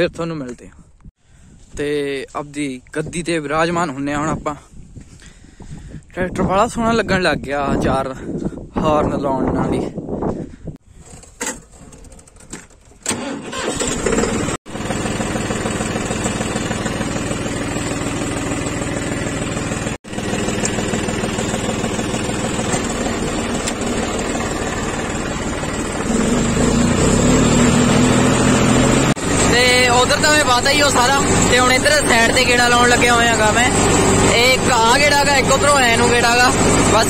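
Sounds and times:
diesel tractor engine running: 12.8s - 37.0s.

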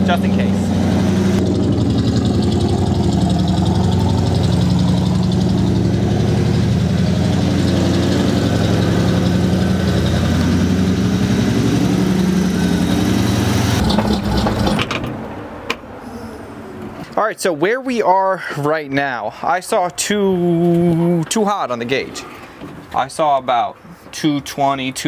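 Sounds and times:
truck engine idling: 0.0s - 16.0s.

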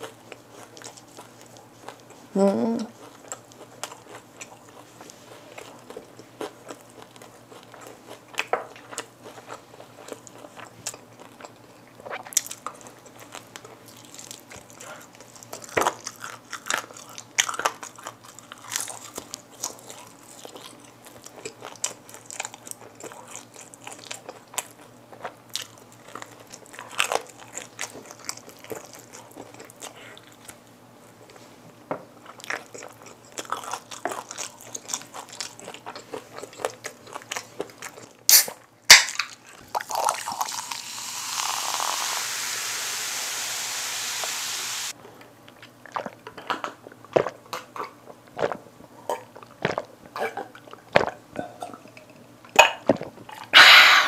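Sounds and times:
chewing: 0.0s - 31.5s, 32.2s - 41.5s, 45.5s - 54.0s
crunchy bites of fried chicken: 3.0s - 30.6s, 32.3s - 41.5s.

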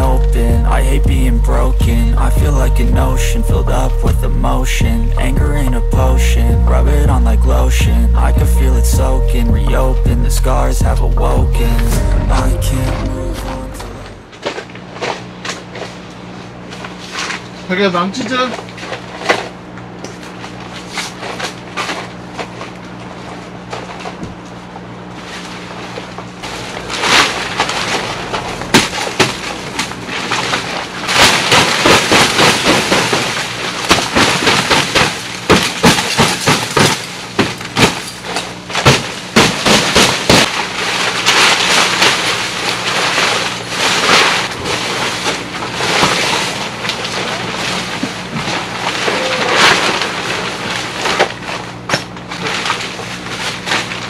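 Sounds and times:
low steady hum: 0.0s - 54.0s
crunching on crushed stone: 18.5s - 54.0s.

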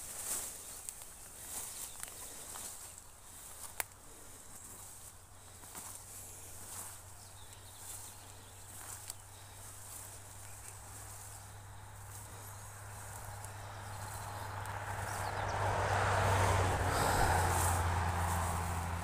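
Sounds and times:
footsteps swishing through grass: 0.0s - 15.2s, 16.9s - 19.0s.

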